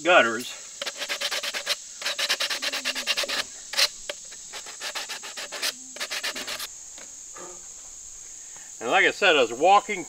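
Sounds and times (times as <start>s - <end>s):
sandpaper scraping plastic pipe: 0.8s - 6.7s.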